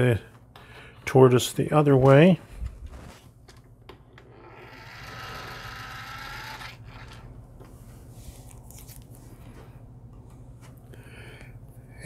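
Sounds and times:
geared motor whirring faintly: 3.9 - 7.7.

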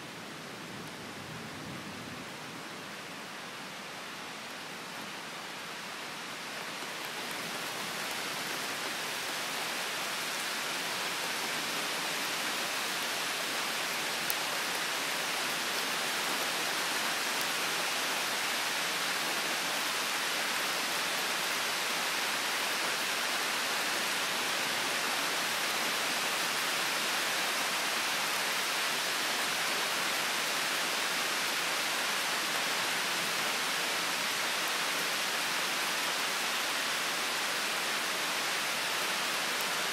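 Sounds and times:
rain falling: 0.0 - 39.9.

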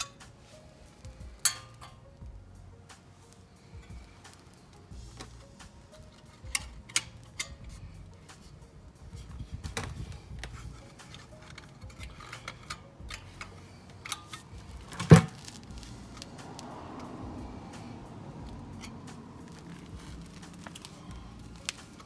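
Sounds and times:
light clicks of handled cover: 18.4 - 22.0.

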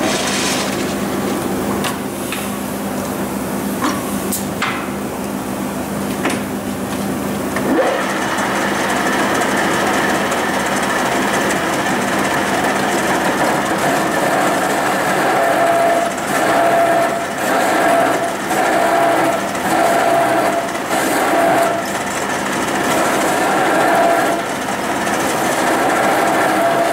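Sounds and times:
lathe cutting steel: 7.6 - 26.9.

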